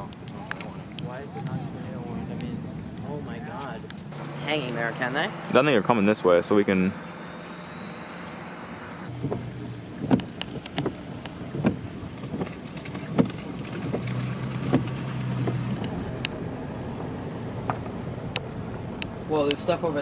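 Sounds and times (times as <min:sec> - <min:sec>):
car road and engine noise: 0:00.0 - 0:20.0
sharp knocks and thumps: 0:09.1 - 0:16.0.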